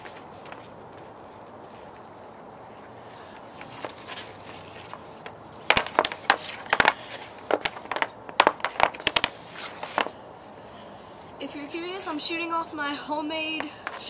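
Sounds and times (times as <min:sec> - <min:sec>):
hockey stick and puck clacking: 0:03.6 - 0:10.1.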